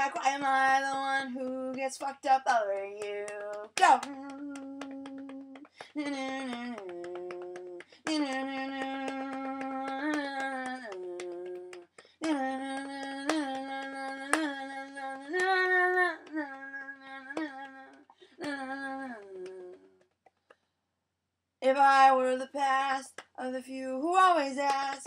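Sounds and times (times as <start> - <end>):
person singing wordless melody: 0.0 - 20.0.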